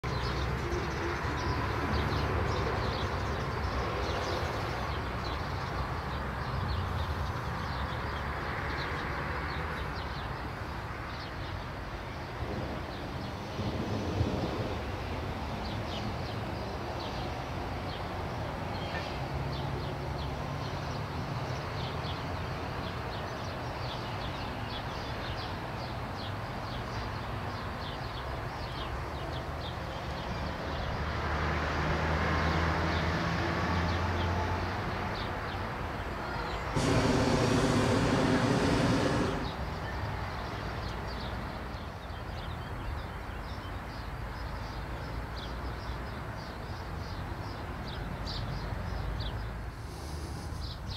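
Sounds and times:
propane burner blast: 36.7s - 39.9s, 49.8s - 50.6s.

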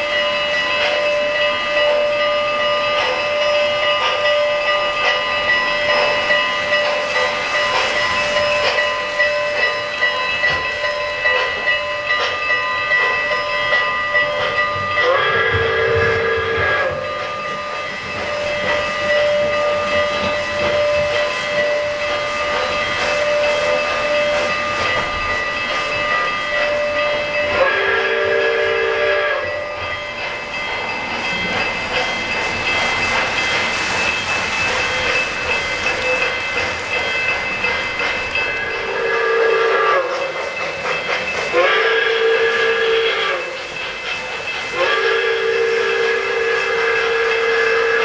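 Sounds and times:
model trains rumbling: 0.0s - 48.0s
steam whistle: 15.0s - 17.4s, 27.5s - 29.8s, 38.6s - 40.4s, 41.5s - 43.7s, 44.7s - 48.0s.

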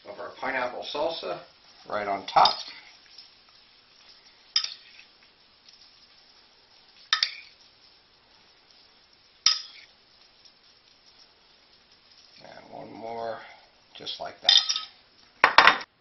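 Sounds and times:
metal spoon clinking on ceramic: 4.5s - 5.0s, 7.1s - 7.6s, 9.5s - 9.9s, 14.5s - 15.0s.

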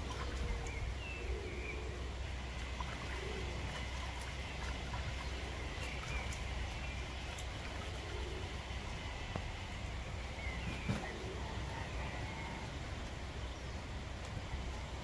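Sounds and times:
water splashing and trickling: 0.0s - 1.1s, 2.1s - 11.8s
wind rumble on microphone: 0.0s - 15.0s.

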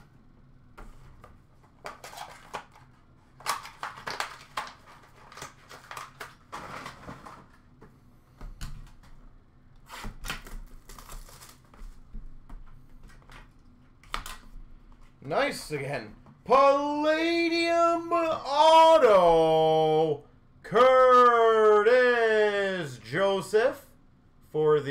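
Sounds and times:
packaging crinkling and tearing: 1.8s - 7.6s, 10.2s - 12.0s.

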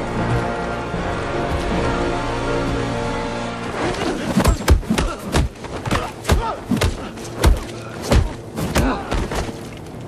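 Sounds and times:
men grunting: 3.9s - 9.4s.

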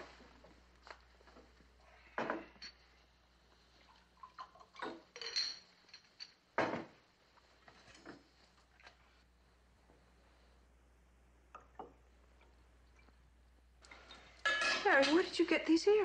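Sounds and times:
glassware clinking: 4.2s - 6.4s, 14.0s - 15.2s.

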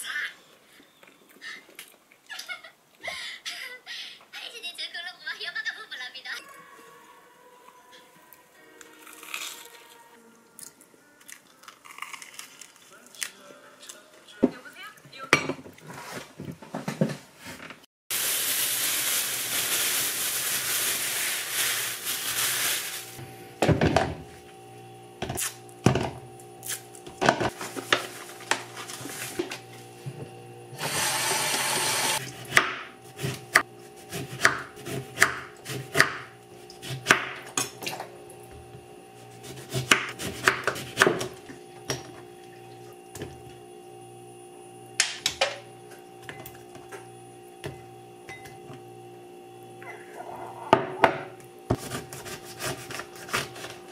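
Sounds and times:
quiet background music: 6.4s - 14.9s
tap water running: 30.8s - 32.5s, 41.3s - 43.6s.

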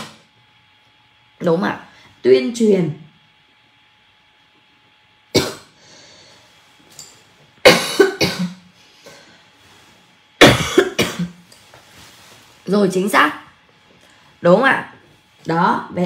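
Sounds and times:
woman coughing: 5.3s - 5.8s, 7.6s - 8.7s, 10.4s - 11.4s.

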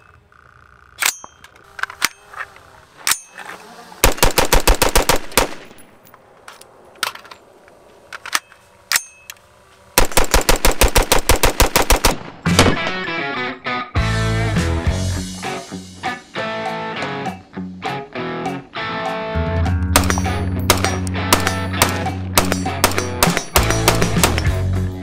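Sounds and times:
rifle gunfire: 4.0s - 5.8s, 10.0s - 13.0s, 20.0s - 24.6s
music: 12.4s - 25.0s.

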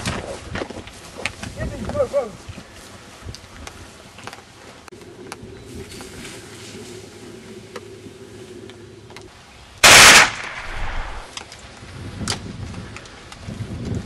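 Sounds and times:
gunshot: 9.8s - 11.3s.

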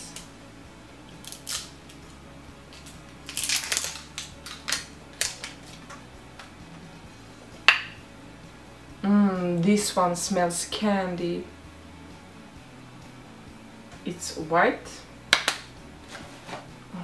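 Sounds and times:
flip-top cap snapping open: 2.8s - 5.6s, 15.3s - 15.7s.

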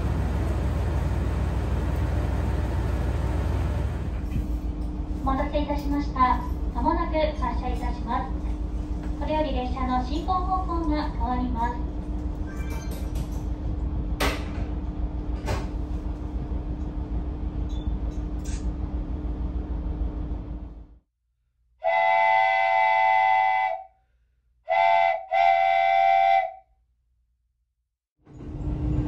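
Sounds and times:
railcar diesel engine rumble: 0.0s - 21.0s, 28.3s - 29.0s
train horn: 21.8s - 24.0s, 24.7s - 26.6s.

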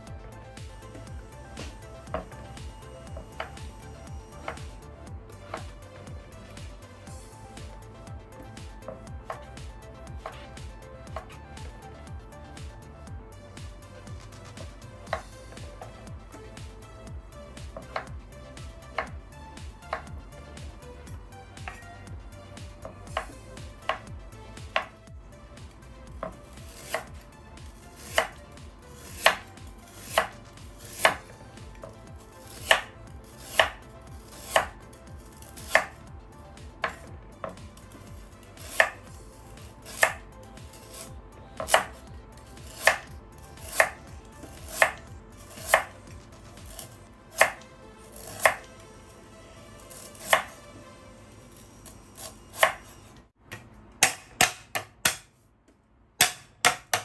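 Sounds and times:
cleaver chopping on wooden board: 3.1s - 3.7s, 4.4s - 4.7s, 5.5s - 5.8s, 15.0s - 15.9s, 17.7s - 18.1s, 19.0s - 19.2s, 19.9s - 20.1s, 22.8s - 24.1s, 24.7s - 25.0s, 26.2s - 27.2s, 28.0s - 28.4s, 29.0s - 33.8s, 34.4s - 34.8s, 35.5s - 36.0s, 36.8s - 37.7s, 38.6s - 39.0s, 39.9s - 40.2s, 40.9s - 42.0s, 42.6s - 45.9s, 46.7s - 47.6s, 48.2s - 48.7s, 50.1s - 50.6s, 52.6s - 52.9s, 53.5s - 55.3s, 56.2s - 57.0s.

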